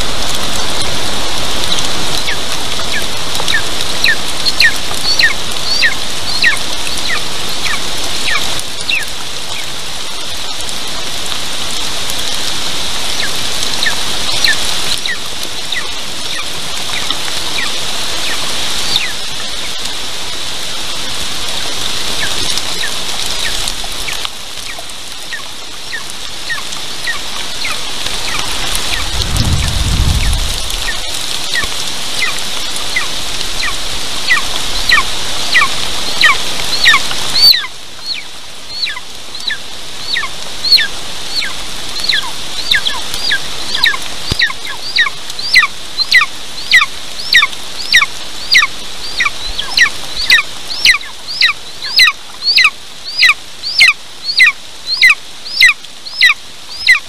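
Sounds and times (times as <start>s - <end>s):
rain hissing: 0.0s - 57.0s
eaglet calling: 2.2s - 9.7s, 30.2s - 57.0s
low rumble: 29.0s - 31.4s.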